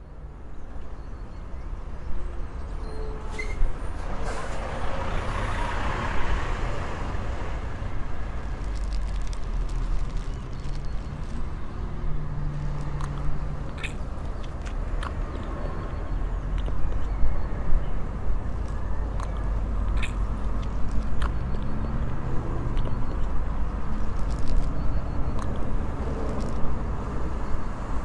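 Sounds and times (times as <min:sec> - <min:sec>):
street traffic noise: 0:00.0 - 0:28.0
vehicle passing by: 0:04.0 - 0:14.0, 0:17.7 - 0:28.0.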